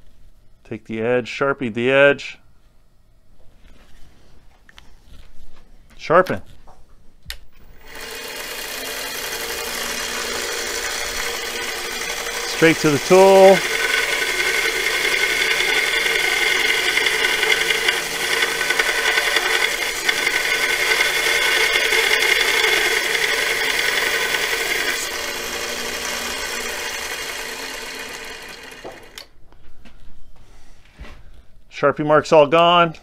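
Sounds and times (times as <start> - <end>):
belt grinder grinding steel: 7.4 - 29.3.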